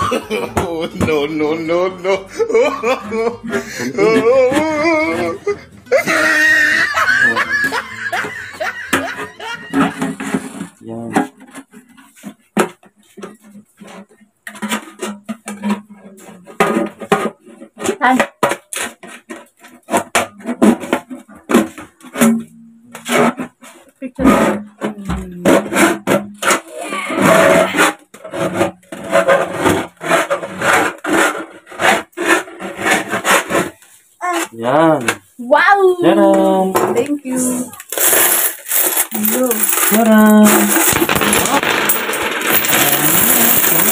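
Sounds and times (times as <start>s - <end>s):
knife scraping metal tin: 25.4s - 34.6s.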